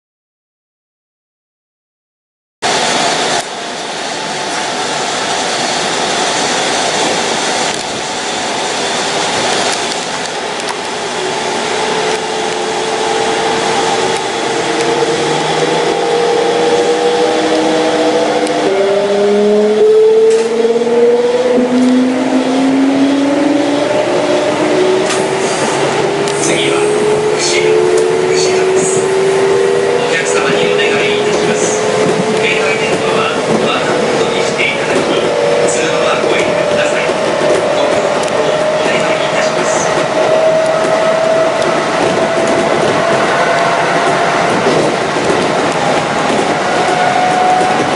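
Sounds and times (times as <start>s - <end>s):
train running noise: 2.6s - 47.9s
electric train motors whining: 34.9s - 47.9s.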